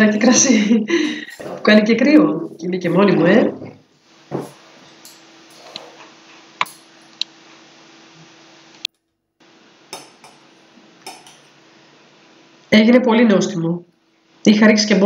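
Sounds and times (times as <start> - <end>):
faint steady hum: 0.0 - 15.0
cutlery clinking on a plate: 4.4 - 6.0, 6.6 - 7.1, 9.9 - 11.6.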